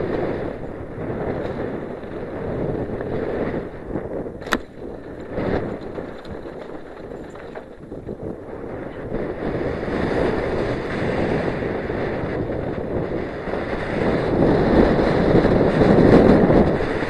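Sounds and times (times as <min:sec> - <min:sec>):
bike tyre rumble on gravel: 0:00.0 - 0:17.0
wind rushing over microphone: 0:00.0 - 0:17.0.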